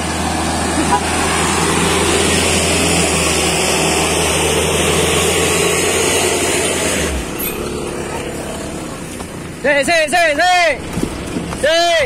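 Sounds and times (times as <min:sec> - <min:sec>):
diesel engine labouring uphill: 0:00.0 - 0:12.0.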